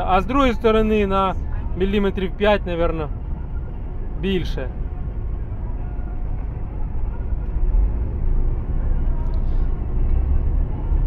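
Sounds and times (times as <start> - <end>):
truck engine drone: 0.0 - 11.0.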